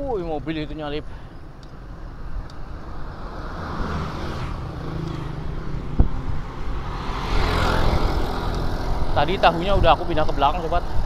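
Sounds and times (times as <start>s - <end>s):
approaching vehicle: 0.5s - 11.0s
car passing: 1.8s - 11.0s.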